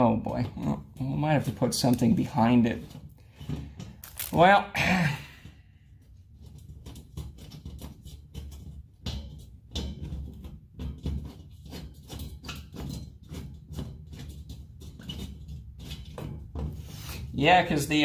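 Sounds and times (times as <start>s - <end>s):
grille clicking and knocking on wall: 5.4s - 18.0s.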